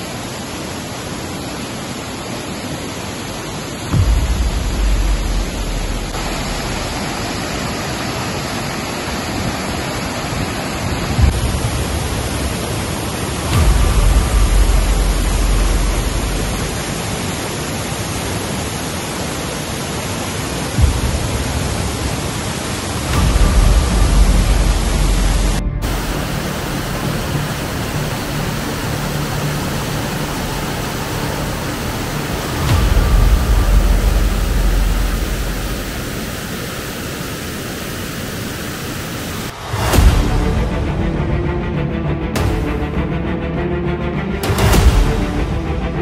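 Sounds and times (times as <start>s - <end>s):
waterfall rushing: 0.0s - 46.0s
heavy low rumble: 3.9s - 8.3s, 10.8s - 17.5s, 20.6s - 46.0s
low bump: 4.0s - 7.5s.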